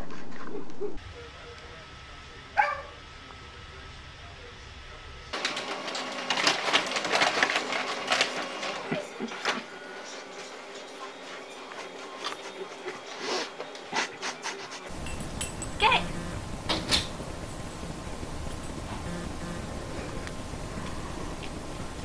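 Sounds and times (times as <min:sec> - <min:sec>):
printer feeding paper clatter: 0:05.4 - 0:12.6, 0:14.9 - 0:22.0
low hum: 0:14.9 - 0:22.0.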